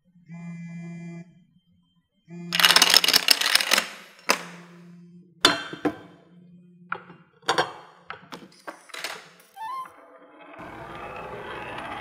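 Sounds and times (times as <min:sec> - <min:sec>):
gear parts knocking and clinking: 0:02.6 - 0:04.6.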